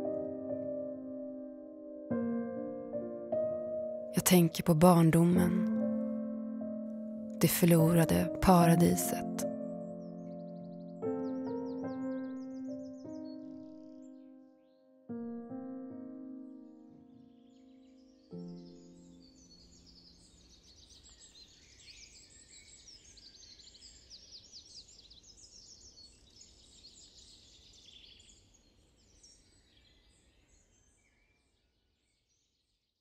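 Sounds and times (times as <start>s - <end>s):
piano chord: 0.0s - 19.8s
small birds chirping: 7.4s - 14.8s, 16.6s - 33.0s.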